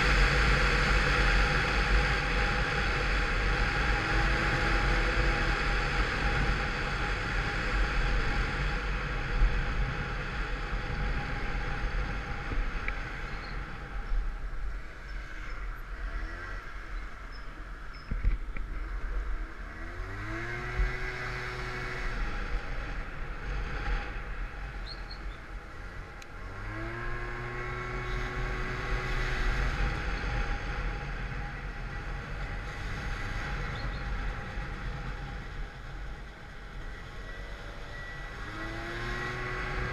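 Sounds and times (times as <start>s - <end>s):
scooter engine: 0.0s - 39.9s.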